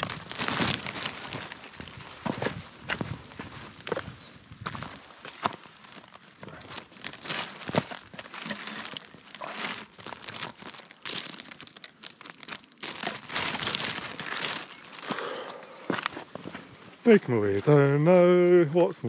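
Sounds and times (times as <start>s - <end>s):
plastic bag crinkling: 0.0s - 2.2s, 5.8s - 15.4s.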